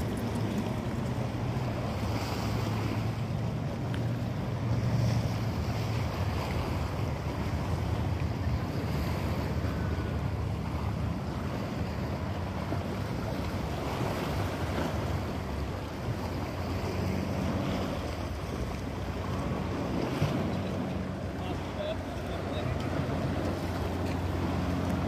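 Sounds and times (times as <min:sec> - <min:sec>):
small waves washing against rocks: 0:00.0 - 0:10.0.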